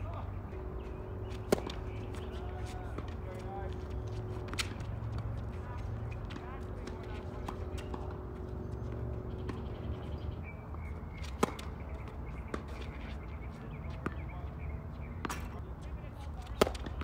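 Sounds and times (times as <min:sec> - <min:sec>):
distant ball hits and bounces: 0:01.2 - 0:13.0, 0:16.4 - 0:17.0
racket hitting tennis ball: 0:01.3 - 0:09.8, 0:11.2 - 0:13.0, 0:15.2 - 0:15.6, 0:16.5 - 0:17.0.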